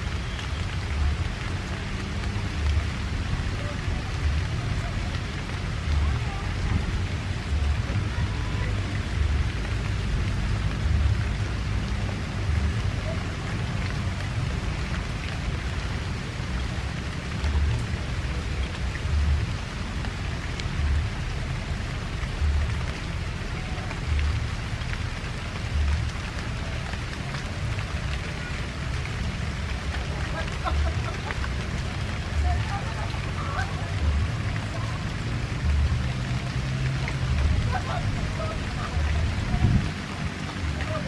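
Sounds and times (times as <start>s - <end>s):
wind buffeting microphone: 38.9s - 41.0s.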